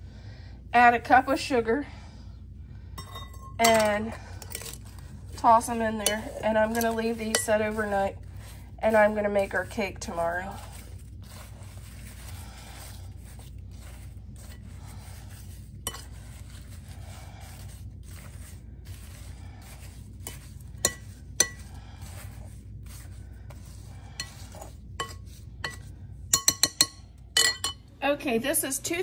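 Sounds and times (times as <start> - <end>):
spoon clinking against glass: 3.0 - 4.7, 25.0 - 27.8
wet rustle of stirred strawberries: 3.9 - 26.0.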